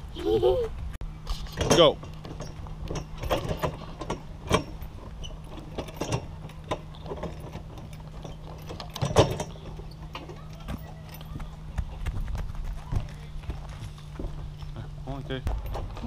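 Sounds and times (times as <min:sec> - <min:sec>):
steady low hum: 0:00.0 - 0:16.0
playground pods clicking and clanking: 0:01.3 - 0:13.4.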